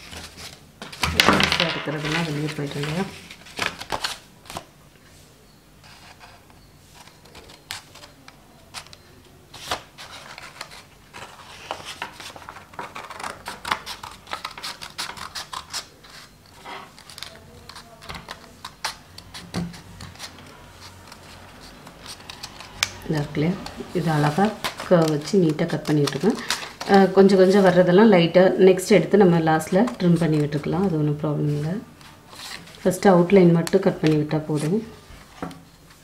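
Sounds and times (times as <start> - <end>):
scissors cutting paper: 12.7 - 16.3, 16.9 - 27.1.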